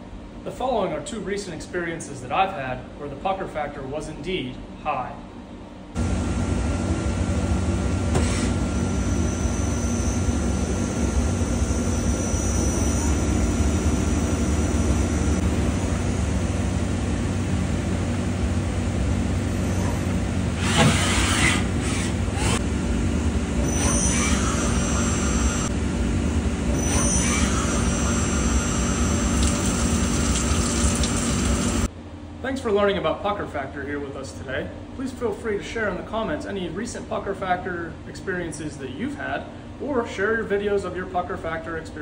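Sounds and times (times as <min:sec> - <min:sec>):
short rising whines: 0:06.0 - 0:30.4
lathe machine hum: 0:06.0 - 0:31.9
sharp harsh machining noises: 0:08.2 - 0:15.4, 0:23.6 - 0:25.7, 0:26.7 - 0:31.9.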